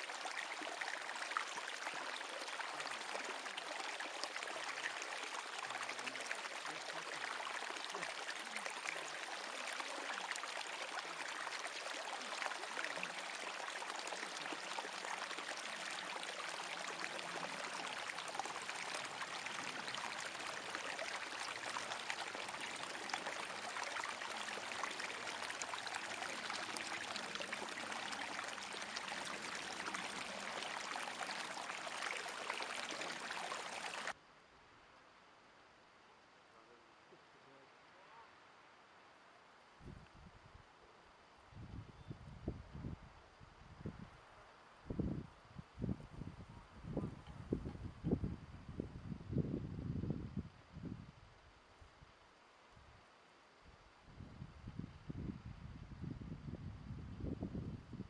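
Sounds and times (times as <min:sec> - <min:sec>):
brook trickling and splashing: 0:00.0 - 0:34.2.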